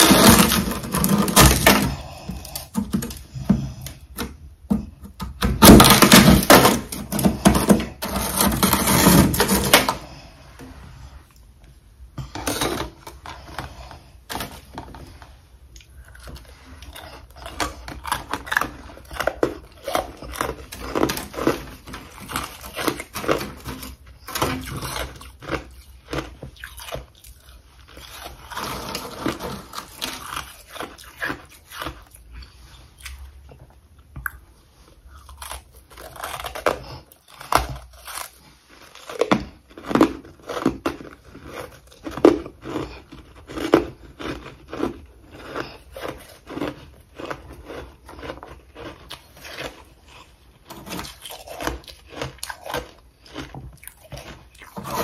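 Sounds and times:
frost being chewed crunching: 0:12.4 - 0:55.0.

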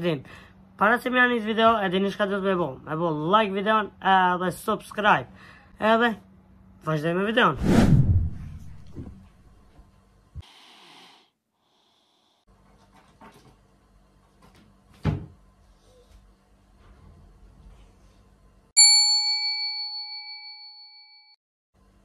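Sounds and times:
bright bell-like ding: 0:18.8 - 0:21.4.

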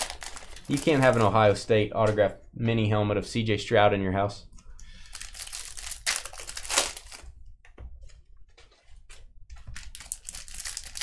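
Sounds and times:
foil wrappers crinkling: 0:00.0 - 0:01.6, 0:04.8 - 0:07.3, 0:09.8 - 0:11.0.

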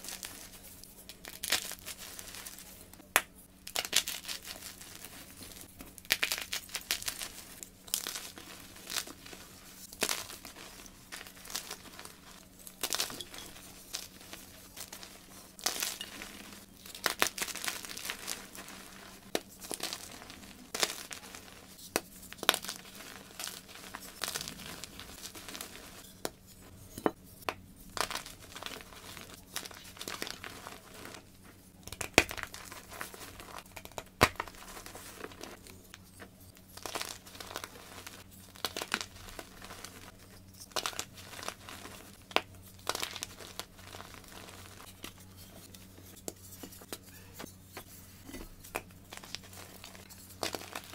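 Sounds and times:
chalk crunching by hand: 0:03.7 - 0:26.0.

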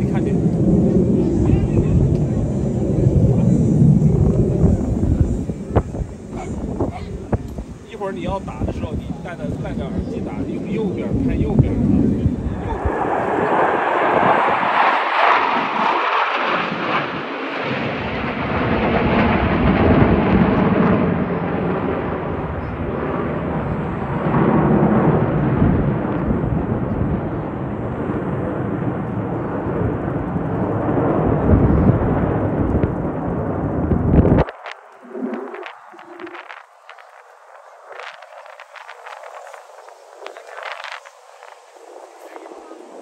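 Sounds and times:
aircraft engine roar: 0:00.0 - 0:43.0.

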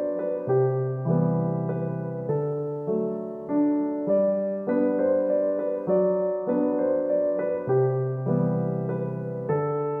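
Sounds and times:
gentle piano music: 0:00.0 - 0:10.0.

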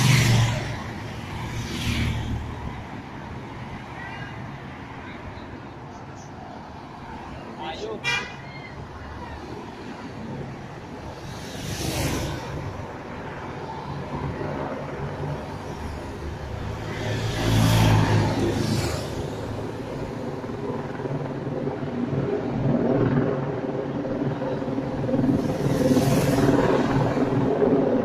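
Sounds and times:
cars driving past: 0:05.9 - 0:20.1.

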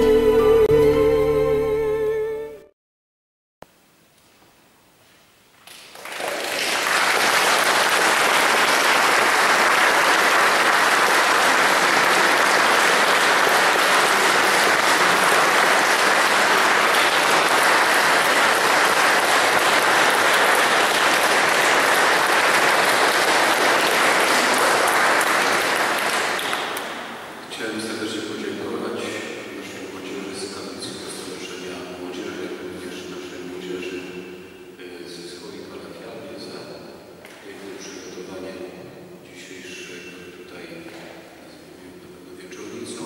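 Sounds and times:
audience applauding: 0:05.6 - 0:27.4.

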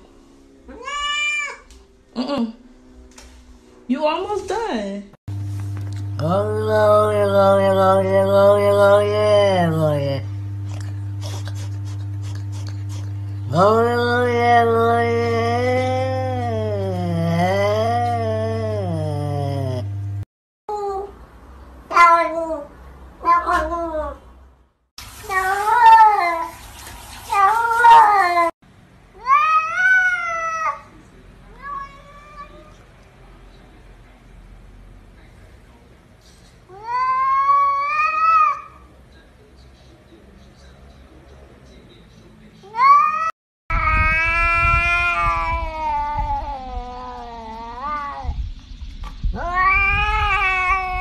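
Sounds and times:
cat meowing: 0:00.7 - 0:01.7, 0:21.9 - 0:24.2, 0:31.5 - 0:32.8, 0:42.8 - 0:48.4, 0:49.4 - 0:51.0.

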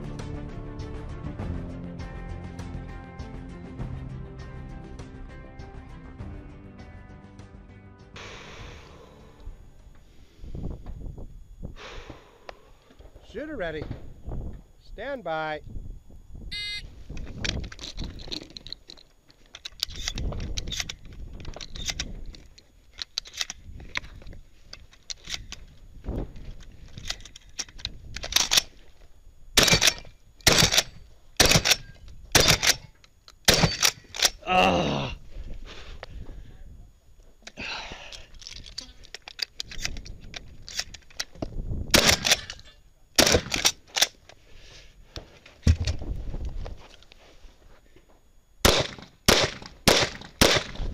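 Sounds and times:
shotgun metallic clicks and rattles: 0:17.2 - 0:25.8, 0:26.4 - 0:28.8, 0:29.6 - 0:34.4, 0:38.2 - 0:44.4
shotgun shots: 0:29.6 - 0:32.8, 0:33.5 - 0:34.0, 0:41.9 - 0:42.5, 0:43.2 - 0:43.7, 0:48.6 - 0:50.9
scraping and shuffling: 0:45.1 - 0:48.3.

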